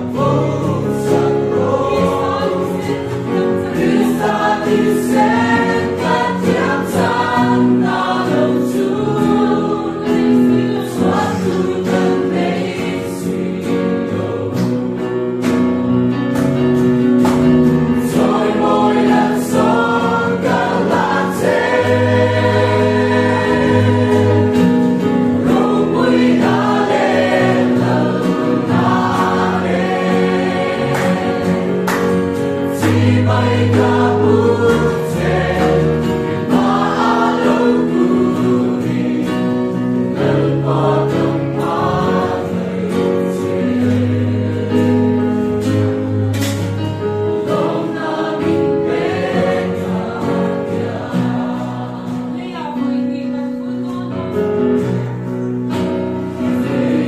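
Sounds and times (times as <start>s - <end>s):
choir singing a hymn: 0.0s - 57.0s.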